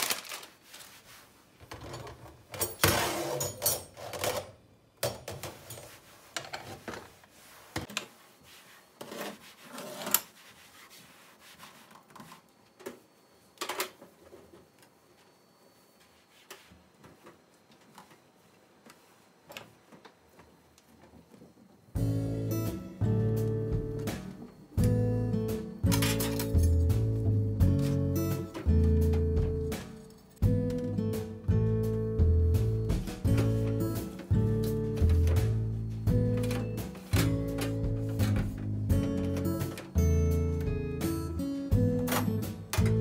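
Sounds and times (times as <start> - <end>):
cleaning sheet wiping steel counter: 5.5 - 12.6.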